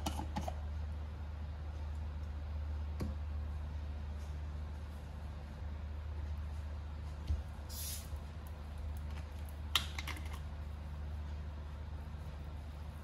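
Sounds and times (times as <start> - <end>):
steady low hum: 0.0 - 13.0
gas hissing from bottle: 7.7 - 8.2.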